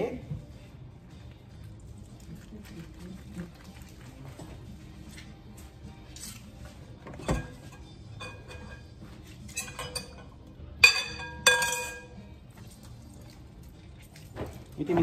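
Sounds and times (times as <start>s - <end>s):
metallic clinks in steel sink: 9.5s - 12.2s.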